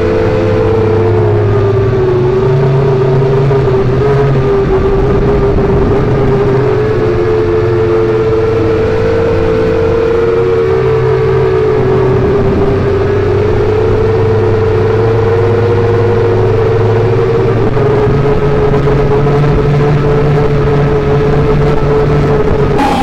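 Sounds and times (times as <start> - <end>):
low hum of car engines: 0.0 - 23.0
drone motors whining: 21.4 - 23.0.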